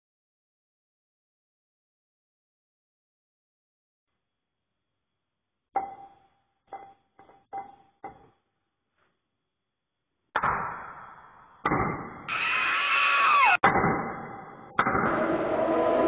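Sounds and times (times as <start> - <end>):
loud burst of noise: 12.3 - 13.6.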